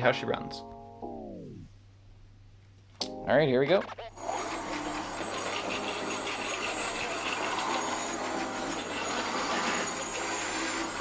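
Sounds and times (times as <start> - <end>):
rc truck electric motor and gears: 4.1 - 11.0.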